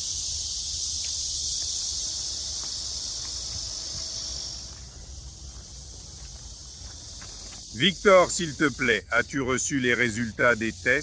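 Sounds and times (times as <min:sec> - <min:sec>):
insects buzzing: 0:00.0 - 0:11.0.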